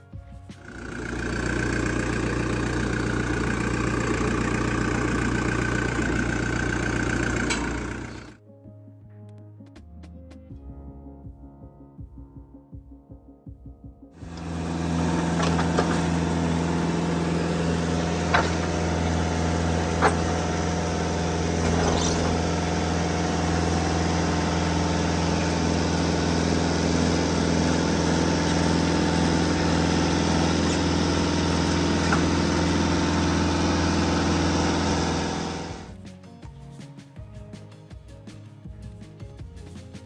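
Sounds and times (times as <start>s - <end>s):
sawmill engine running: 0.6s - 8.4s, 14.2s - 35.9s.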